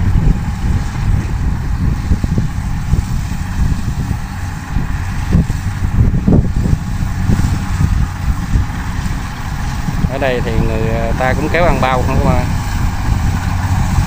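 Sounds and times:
engine running: 0.0 - 14.0
wind buffeting microphone: 0.0 - 14.0.

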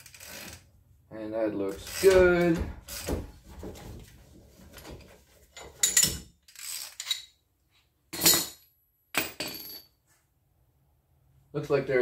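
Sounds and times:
metal tool clanking and rattling: 5.6 - 6.3, 8.2 - 8.6.

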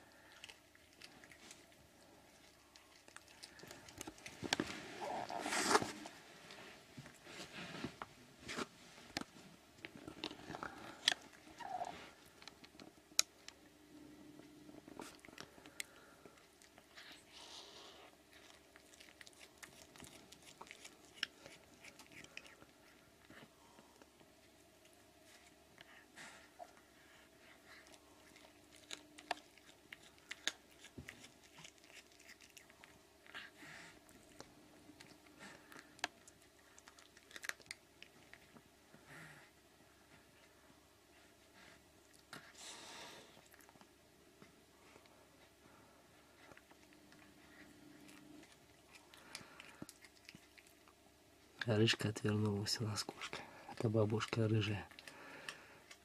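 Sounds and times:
cat crunching on prey: 0.0 - 6.0, 18.2 - 25.5, 27.6 - 38.7, 46.4 - 51.0, 53.0 - 56.0.

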